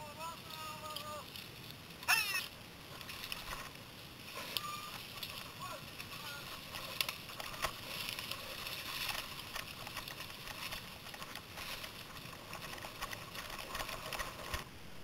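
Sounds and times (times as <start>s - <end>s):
bike tyres hissing on trail: 0.0s - 15.0s
small clicks and rattles: 2.4s - 14.7s.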